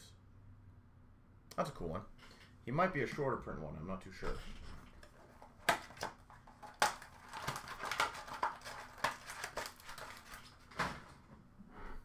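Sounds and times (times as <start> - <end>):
trading cards and packaging handled: 4.8 - 11.2.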